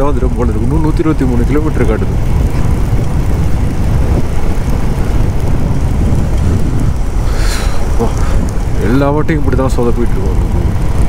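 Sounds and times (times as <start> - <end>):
motorcycle engine: 0.0 - 11.0
road noise: 0.0 - 11.0
wind rumble on microphone: 0.0 - 11.0.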